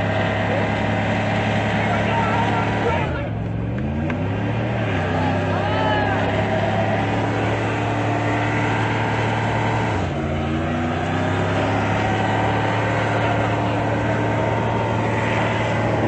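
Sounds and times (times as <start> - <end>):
pickup engine revving high: 0.0 - 16.0.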